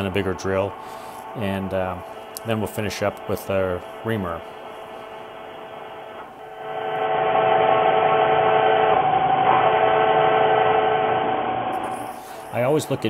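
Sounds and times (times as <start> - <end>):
drill squealing in metal: 11.8 - 13.0.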